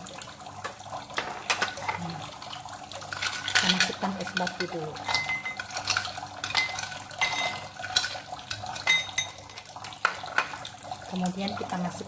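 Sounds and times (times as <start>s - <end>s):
ice cubes clinking in a glass: 3.0s - 10.6s.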